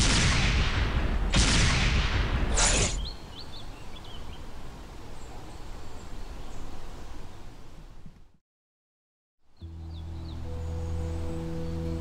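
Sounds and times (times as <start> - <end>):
woodland ambience: 2.6 - 8.4, 9.4 - 12.0
small birds chirping: 2.7 - 8.1, 9.5 - 12.0.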